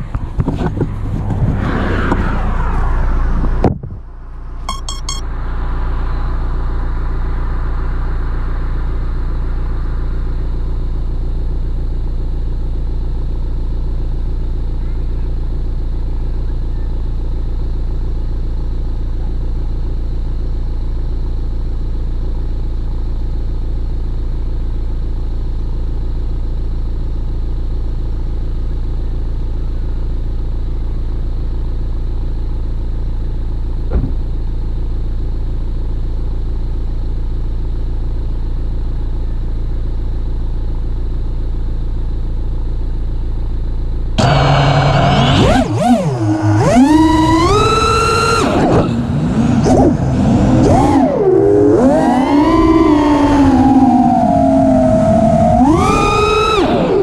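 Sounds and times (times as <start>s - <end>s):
low mechanical hum: 0.0s - 57.0s
short falling tone: 0.8s - 10.5s.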